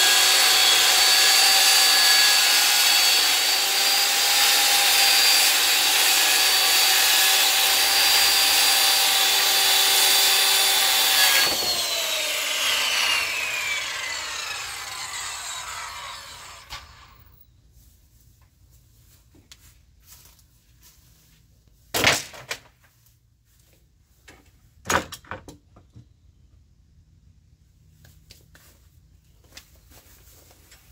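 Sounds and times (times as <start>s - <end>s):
circular saw cutting wood: 0.0s - 17.4s
saw blade winding down: 0.0s - 17.4s.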